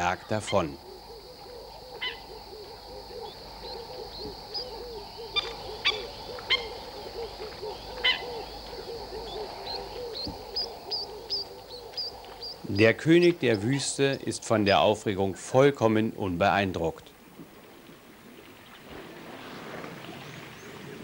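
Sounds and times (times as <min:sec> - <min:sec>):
birds calling low repeated notes: 0:00.0 - 0:19.0
bird chirps: 0:03.0 - 0:14.8.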